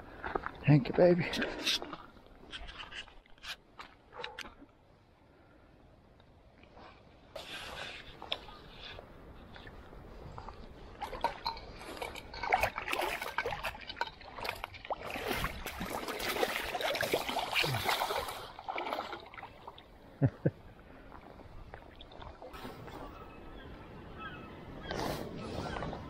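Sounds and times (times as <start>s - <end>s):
river water splashing: 10.4s - 23.1s.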